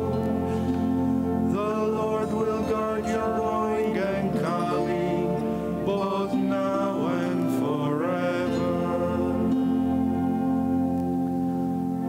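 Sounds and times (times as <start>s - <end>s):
held low accompanying chords: 0.0s - 12.0s
men singing slow chant: 1.5s - 10.1s.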